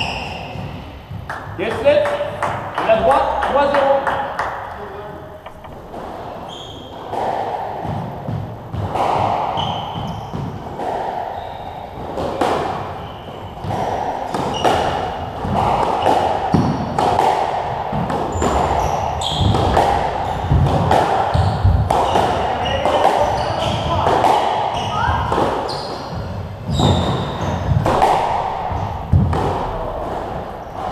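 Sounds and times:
shoes squeaking on wooden floor: 4.6s - 7.1s, 18.3s - 19.6s, 24.8s - 28.0s
squash ball cracking off rackets: 26.7s - 30.9s.

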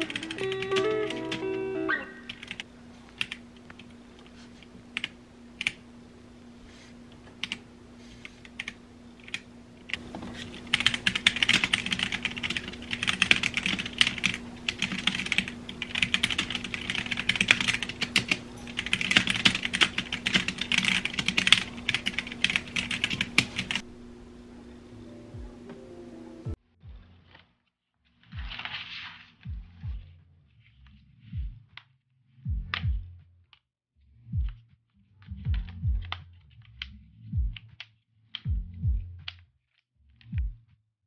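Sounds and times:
mechanical keyboard typing: 0.0s - 1.5s, 2.3s - 3.9s, 7.4s - 7.6s, 8.4s - 23.8s.

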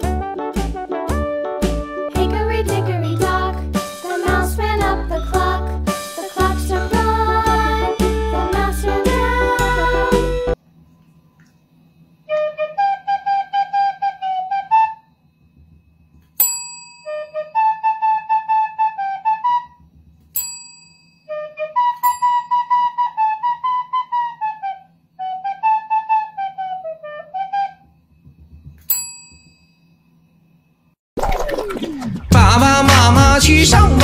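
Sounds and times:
flute-like melody: 0.0s - 10.6s, 12.3s - 15.1s, 17.1s - 19.8s, 21.3s - 28.0s
desk call bell ding: 16.4s - 17.1s, 28.9s - 30.0s.

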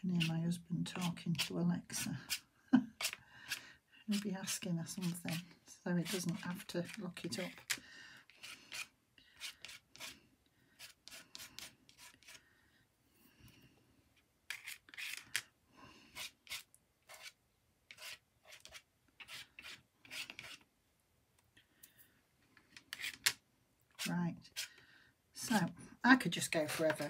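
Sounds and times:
palette knife scraping paint: 0.0s - 10.2s, 10.8s - 12.4s, 14.5s - 15.4s, 16.1s - 20.7s, 22.8s - 23.3s, 23.9s - 24.8s, 26.3s - 27.0s.

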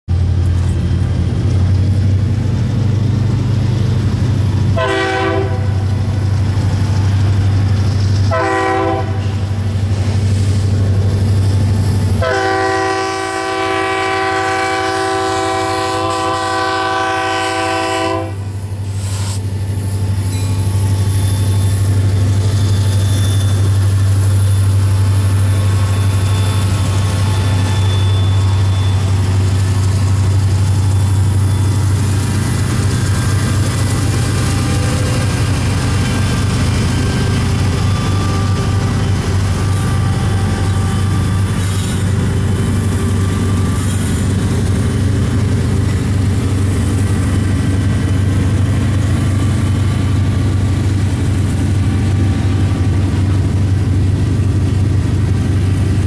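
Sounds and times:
locomotive air horn blasts: 4.8s - 6.0s, 8.3s - 9.5s, 12.2s - 18.5s, 36.4s - 44.2s
locomotives rumbling past: 19.5s - 56.0s.

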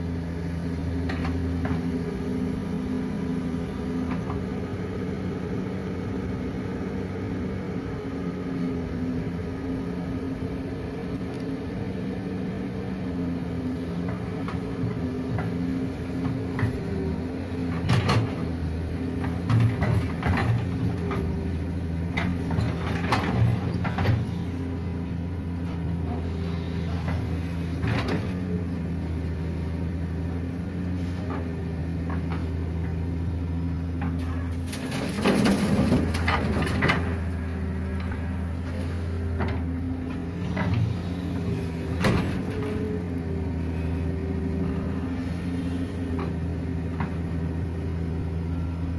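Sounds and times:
excavator diesel engine running: 0.0s - 48.9s
stones clattering into truck bed: 34.6s - 37.1s.

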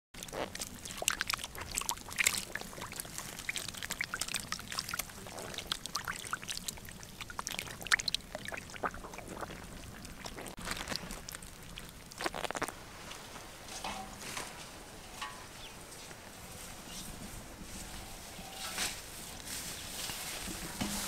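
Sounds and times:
fish splashing in shallow water: 0.2s - 12.9s.

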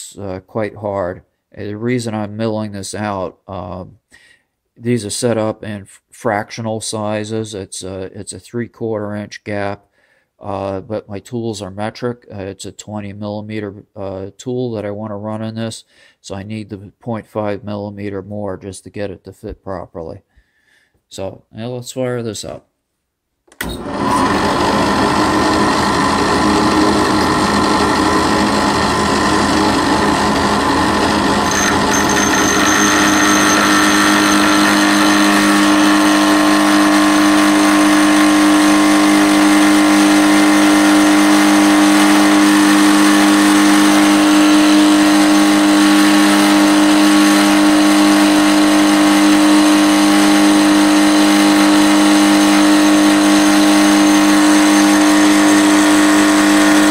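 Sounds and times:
end mill cutting steel: 23.7s - 38.8s
machine motor humming: 23.7s - 39.2s.

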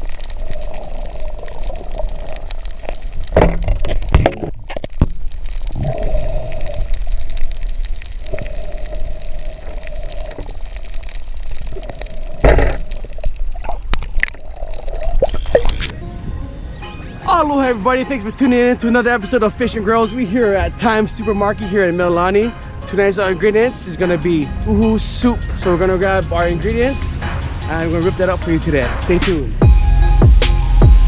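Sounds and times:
underwater swishing and gurgling: 0.0s - 17.3s
wavering hum: 15.2s - 22.9s.

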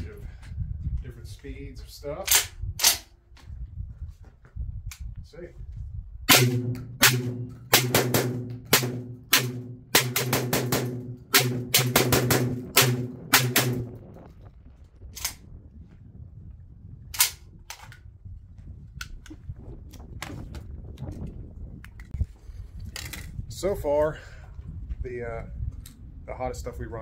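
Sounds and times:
shotgun firing rapidly: 6.3s - 14.0s.

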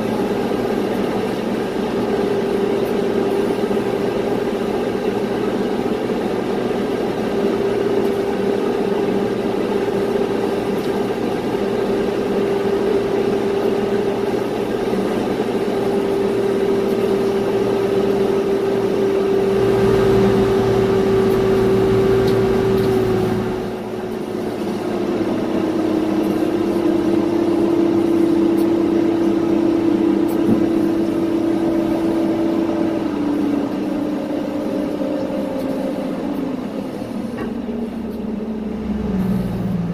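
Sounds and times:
steady mechanical noise: 0.0s - 39.9s
whine sinking in pitch: 15.7s - 39.9s
low rumble: 36.4s - 39.9s.

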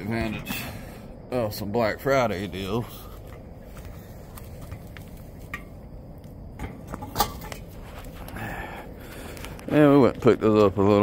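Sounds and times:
low outdoor background: 0.0s - 11.0s.

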